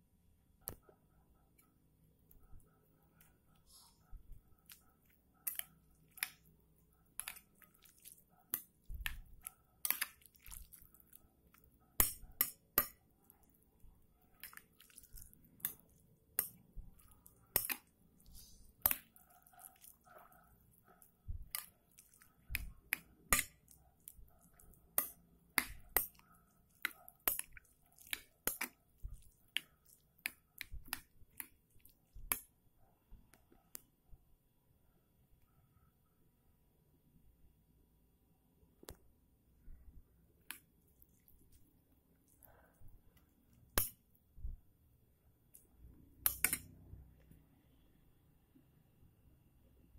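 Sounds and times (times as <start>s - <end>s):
metal spoon clinking bowl: 12.0s - 13.0s.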